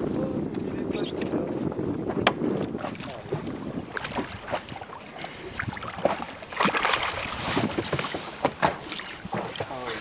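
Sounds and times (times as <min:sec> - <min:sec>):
wind on the microphone: 0:00.0 - 0:10.0
fish splashing at the surface: 0:05.7 - 0:08.1.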